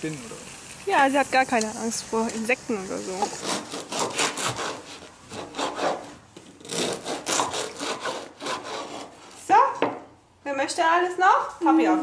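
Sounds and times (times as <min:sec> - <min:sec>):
knife sawing through bread: 0:03.2 - 0:09.4.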